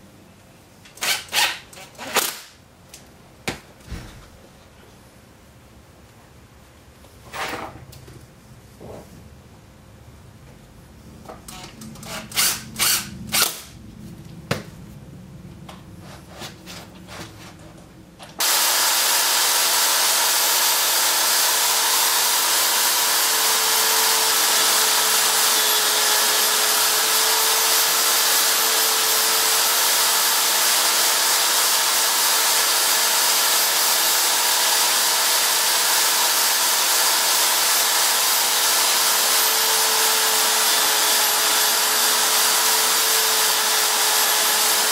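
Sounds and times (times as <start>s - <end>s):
impact driver driving screws: 0.9s - 2.5s, 11.5s - 13.7s, 18.4s - 44.9s
electric drill running steadily: 18.4s - 44.9s.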